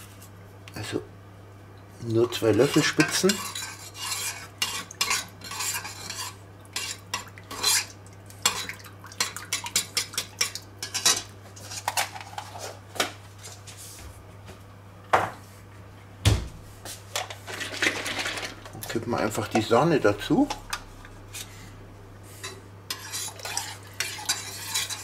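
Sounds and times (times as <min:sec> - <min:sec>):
low steady hum: 0:00.0 - 0:25.0
metal spoon scraping saucepan: 0:02.3 - 0:08.7, 0:22.4 - 0:25.0.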